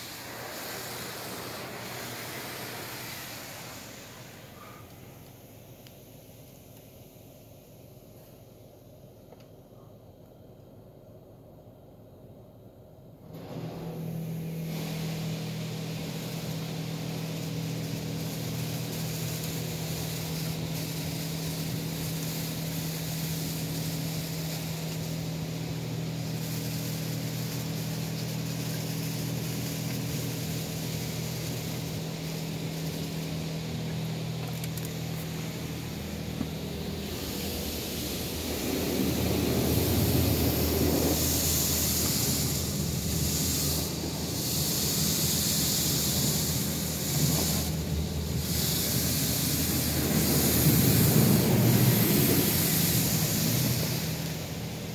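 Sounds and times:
machine hum: 13.2s - 54.9s
water spray on car glass: 14.4s - 54.9s.

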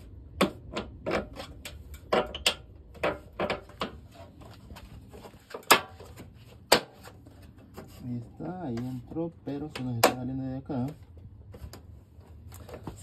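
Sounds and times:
plastic panel pieces knocking: 0.3s - 4.0s.

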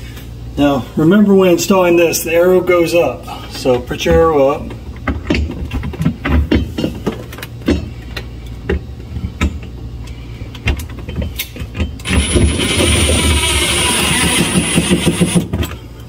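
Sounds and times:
motor whirring: 12.0s - 15.4s.

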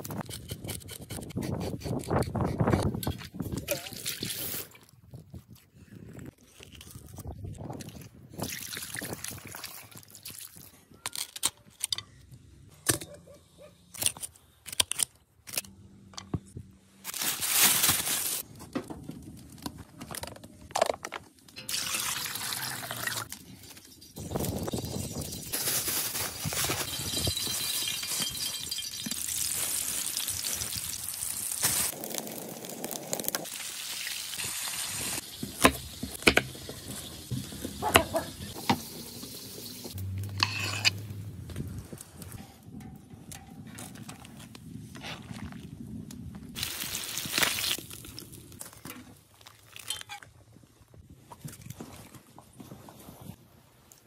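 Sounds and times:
fish sizzling in hot oil: 27.6s - 37.8s.

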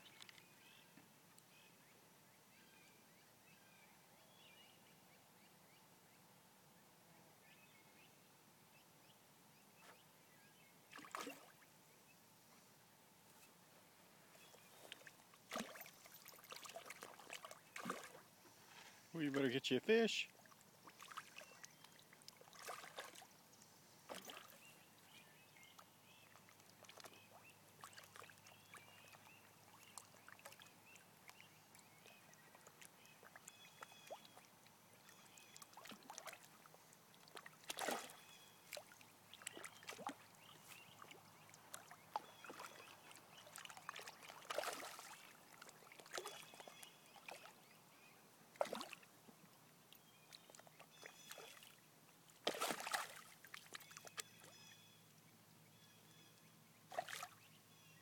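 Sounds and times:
dog wading in water: 10.9s - 11.5s, 14.4s - 18.3s, 20.3s - 23.3s, 24.1s - 24.8s, 26.2s - 47.6s, 48.6s - 49.0s, 52.4s - 54.3s.

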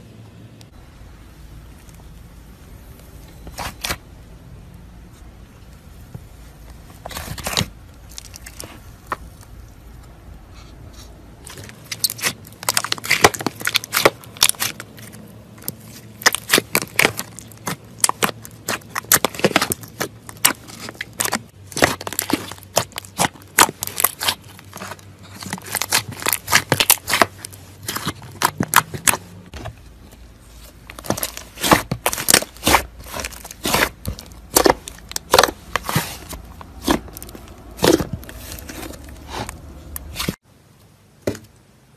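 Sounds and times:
slime squished by hand: 11.0s - 29.7s, 30.4s - 40.4s.

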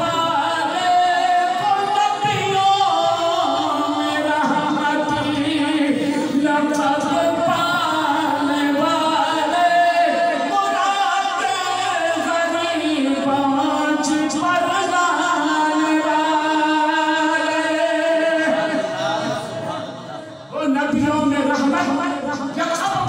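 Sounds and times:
man chanting through microphone: 0.0s - 23.0s.

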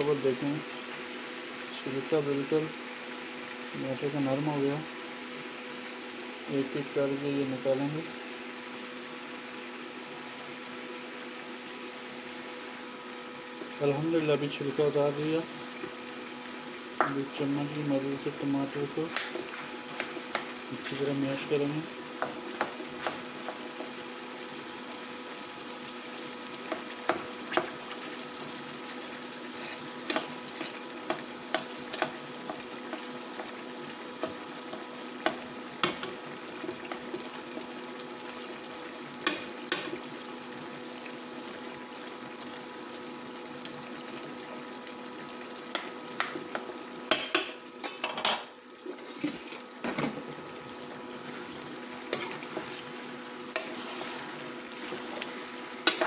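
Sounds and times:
food sizzling in oil: 0.0s - 56.0s
metal utensil scraping pan: 52.1s - 53.0s, 53.6s - 56.0s.

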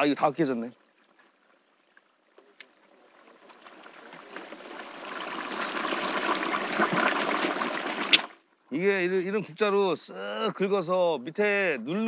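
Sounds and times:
potatoes deep-frying in oil: 3.3s - 8.4s.

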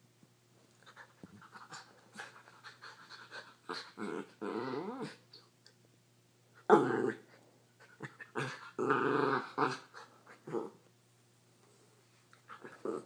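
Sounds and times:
dog growling: 3.6s - 5.2s, 6.7s - 10.8s, 12.5s - 13.0s.

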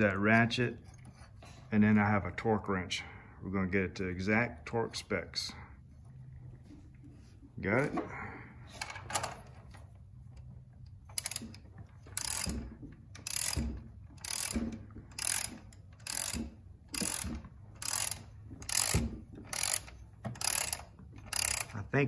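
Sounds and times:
hand ratchet clicking: 11.0s - 21.8s.

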